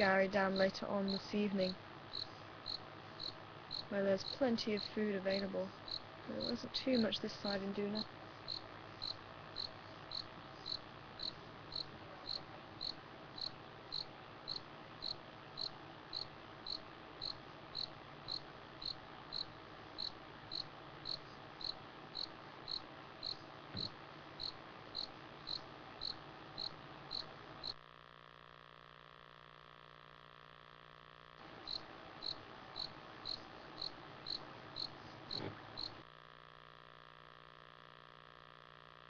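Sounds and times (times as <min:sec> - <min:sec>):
low steady hum: 0:00.0 - 0:39.0
cricket chirping: 0:02.1 - 0:06.6, 0:07.4 - 0:27.8, 0:31.5 - 0:36.0.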